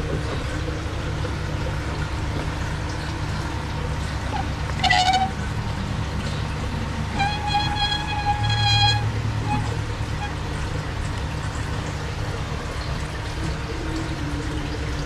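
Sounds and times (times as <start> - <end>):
aquarium filter humming: 0.0 - 15.0
horn honks: 4.3 - 5.5, 7.1 - 10.6.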